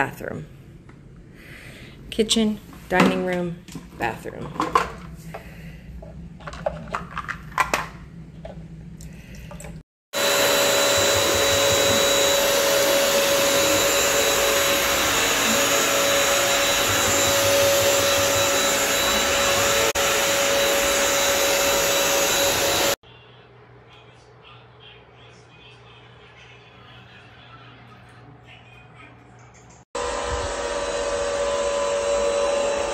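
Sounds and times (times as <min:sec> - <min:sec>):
vacuum mop motor whining: 0:10.1 - 0:23.0, 0:30.0 - 0:32.9.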